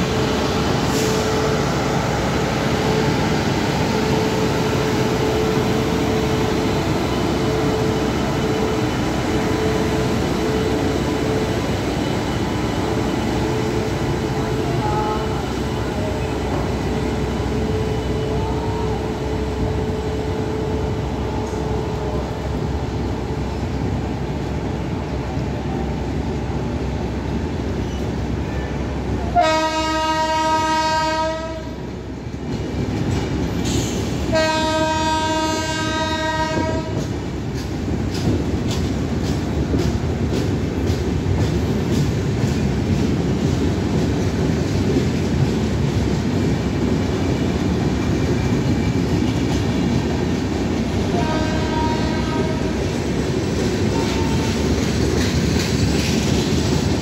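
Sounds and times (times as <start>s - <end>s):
train wheels rumbling on rail: 0.0s - 57.0s
train horn blasts: 14.6s - 15.6s, 29.3s - 31.8s, 34.3s - 37.1s, 51.1s - 52.8s, 53.9s - 54.6s.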